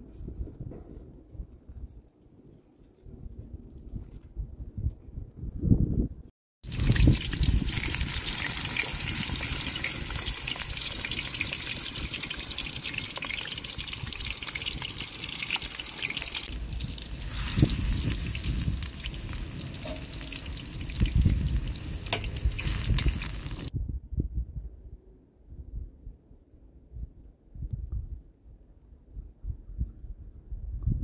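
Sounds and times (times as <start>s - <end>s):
eggplant sizzling in hot oil: 6.6s - 23.7s.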